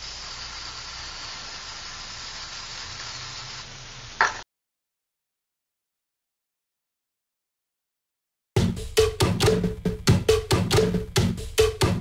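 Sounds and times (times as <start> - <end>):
spray paint can hissing: 0.0 - 4.4.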